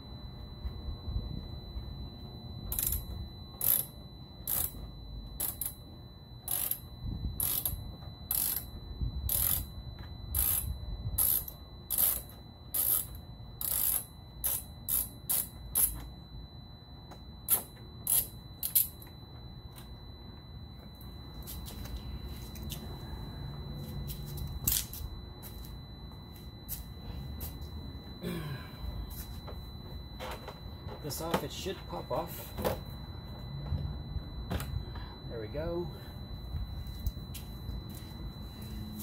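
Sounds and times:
hand ratchet clicking: 2.7s - 4.8s, 5.4s - 5.8s, 6.5s - 8.7s, 9.3s - 9.7s, 10.3s - 16.0s, 17.5s - 19.0s.

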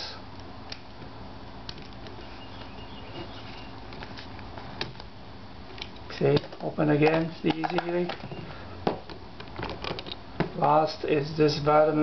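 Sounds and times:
steady low hum: 0.0s - 12.0s
faint clicks and rustles: 1.6s - 5.1s.

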